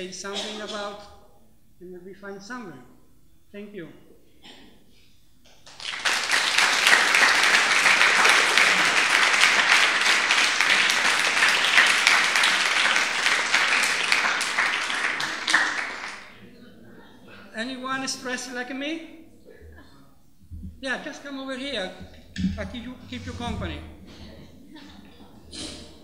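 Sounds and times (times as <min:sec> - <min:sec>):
audience applauding: 0:05.6 - 0:16.4.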